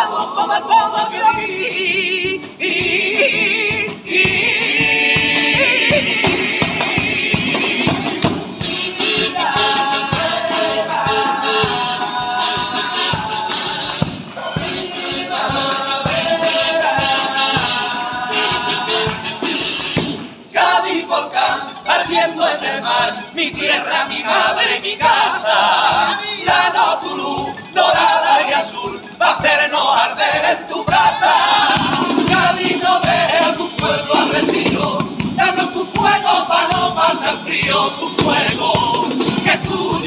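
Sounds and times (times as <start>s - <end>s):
group singing in chorus: 0.0s - 40.0s
kazoos playing a melody: 8.6s - 19.9s.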